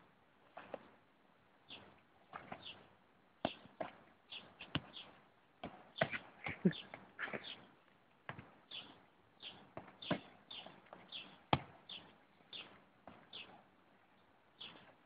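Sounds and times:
plastic ball kicked on grass: 11.5s - 11.8s.

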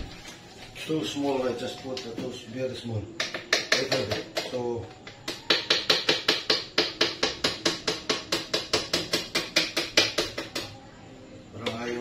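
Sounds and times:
kitchen utensil knocking: 3.2s - 4.6s.

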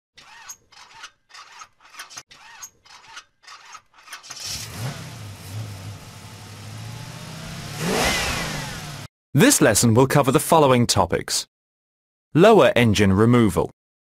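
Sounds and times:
car engine starting and idling: 4.3s - 9.1s.

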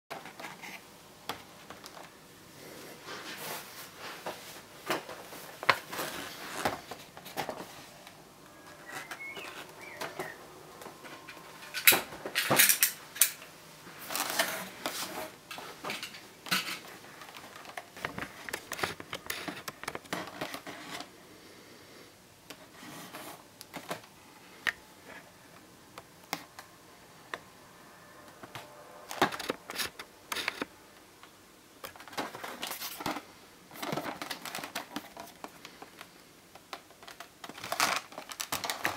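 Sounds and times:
packaging clicks and rustles: 4.3s - 13.4s, 14.0s - 21.1s, 28.4s - 30.7s, 31.8s - 38.9s.

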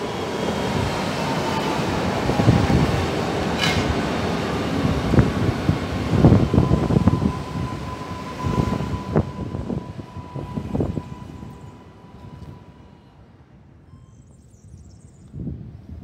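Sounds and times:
steady train whine: 0.0s - 14.0s
train wheels clacking over rail joints: 3.5s - 4.4s.

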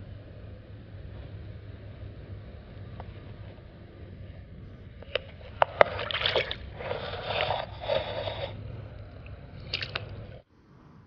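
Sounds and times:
water splashing and sloshing: 4.8s - 10.4s.

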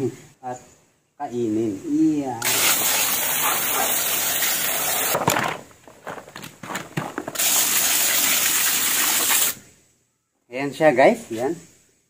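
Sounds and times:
hose nozzle spraying water: 2.4s - 5.2s, 7.3s - 9.6s.

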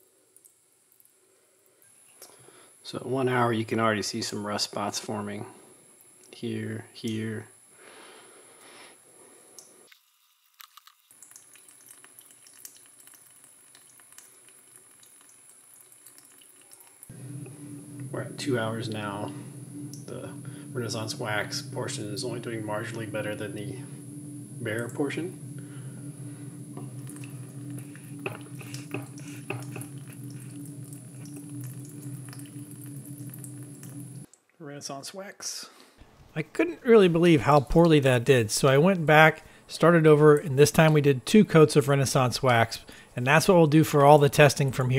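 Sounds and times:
small ticks and drips: 0.2s - 2.5s, 5.9s - 7.2s, 9.5s - 34.6s, 40.3s - 41.0s
steady low hum: 17.0s - 34.3s
tap water trickling into sink: 26.6s - 34.3s.

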